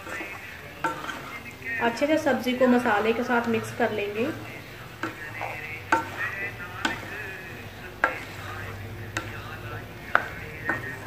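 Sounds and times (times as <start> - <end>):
spoon stirring vegetables in pan: 0.0 - 11.0
spoon knocking against metal pan: 0.1 - 1.4, 4.3 - 7.2, 8.0 - 11.0.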